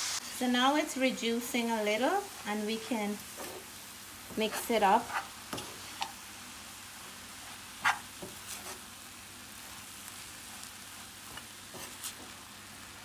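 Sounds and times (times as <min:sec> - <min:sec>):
spinach sizzling in a frying pan: 0:00.0 - 0:13.0
wooden spatula scraping: 0:02.2 - 0:06.2, 0:07.4 - 0:08.9, 0:09.6 - 0:12.6.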